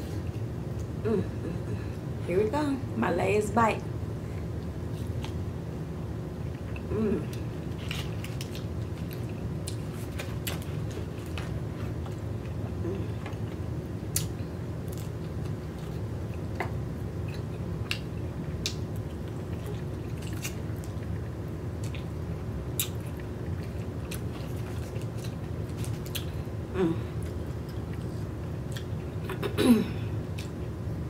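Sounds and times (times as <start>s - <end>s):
low background hum: 0.0s - 31.0s
person humming mm: 1.0s - 1.9s, 6.9s - 7.4s, 12.8s - 13.2s, 26.7s - 27.2s.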